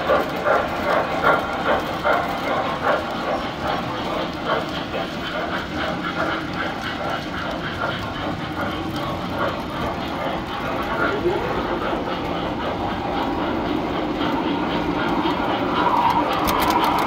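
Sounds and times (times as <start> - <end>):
toy train rolling rumble: 0.0 - 17.0
wheels clicking over rail joints: 0.0 - 17.0.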